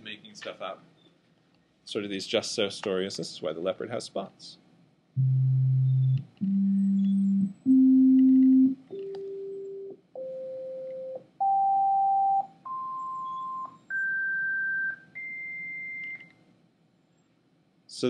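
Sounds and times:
sine-wave test tones rising in pitch: 5.2 - 8.9.

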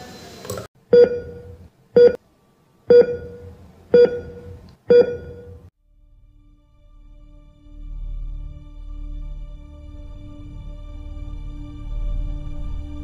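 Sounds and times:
heart monitor beeps: 0.9 - 2.2, 2.9 - 5.7.

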